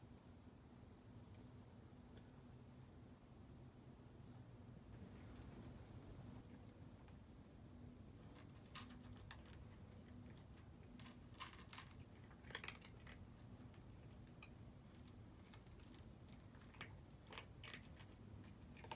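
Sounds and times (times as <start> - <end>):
cats crunching dry kibble: 5.3 - 18.9.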